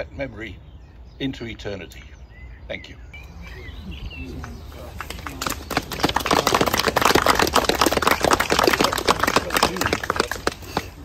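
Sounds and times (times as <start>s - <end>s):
bird chirps: 0.0s - 6.0s
crowd applauding: 4.4s - 11.0s.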